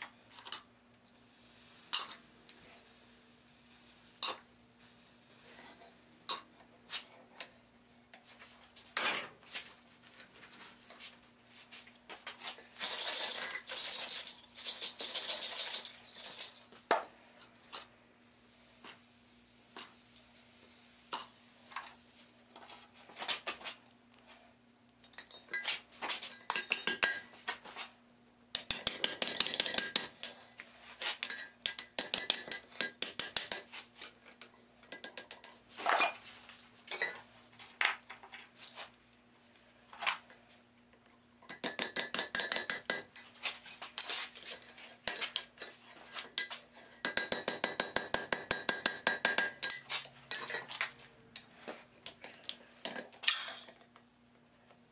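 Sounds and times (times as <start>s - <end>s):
hammer striking steel on anvil: 47.0s - 49.9s.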